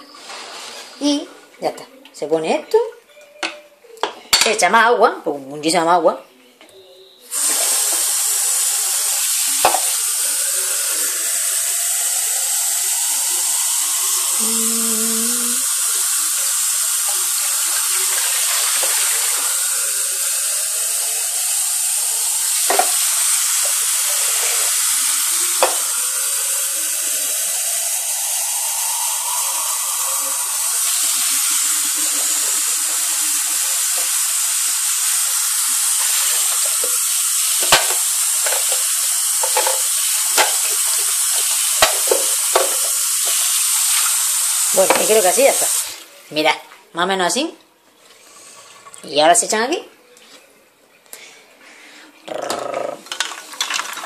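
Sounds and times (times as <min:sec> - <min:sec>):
tap water running into metal bowl: 0:07.3 - 0:46.0, 0:53.0 - 0:54.0.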